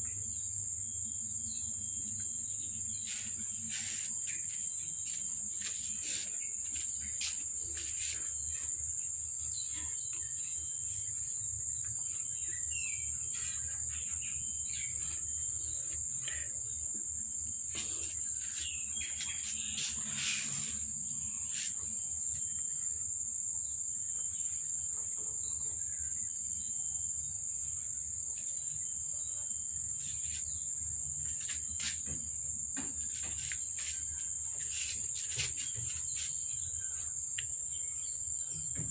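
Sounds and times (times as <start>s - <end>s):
insects droning: 0.0s - 38.9s.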